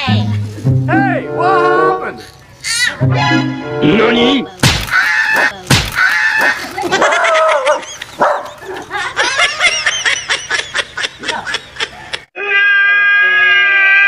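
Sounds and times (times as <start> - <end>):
dog yelping and barking: 6.9 - 8.9.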